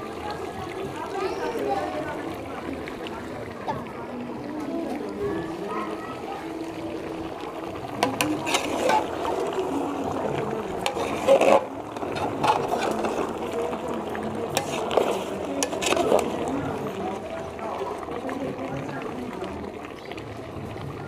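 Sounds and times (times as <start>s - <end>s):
steady sizzle: 0.0s - 21.0s
metal spatula scraping pot: 8.0s - 9.8s, 10.4s - 13.6s, 14.5s - 16.6s.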